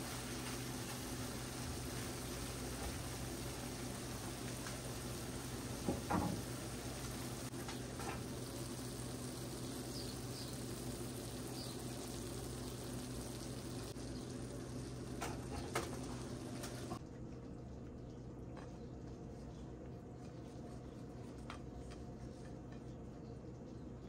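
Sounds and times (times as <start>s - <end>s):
food sizzling in a frying pan: 0.0s - 17.0s
steady low hum: 0.0s - 24.0s.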